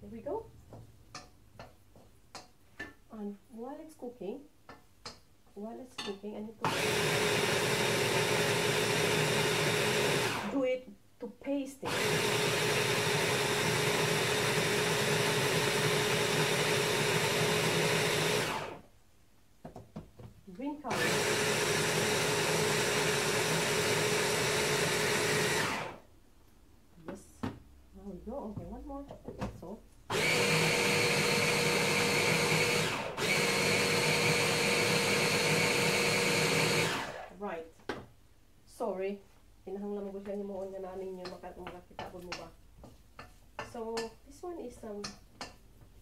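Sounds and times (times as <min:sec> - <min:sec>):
stick blender running: 0:06.6 - 0:10.6, 0:11.9 - 0:18.8, 0:20.9 - 0:26.0, 0:30.1 - 0:37.4.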